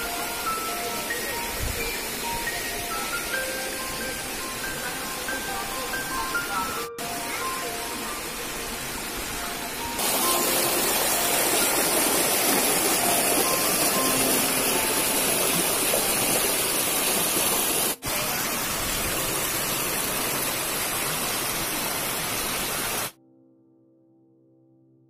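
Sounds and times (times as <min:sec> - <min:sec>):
stream water rushing over rocks: 0:00.0 - 0:23.1.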